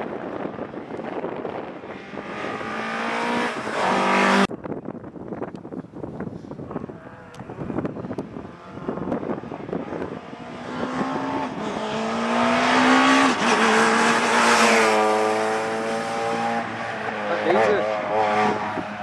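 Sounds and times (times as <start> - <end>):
rally car engine passing: 1.4 - 4.5, 7.0 - 19.0.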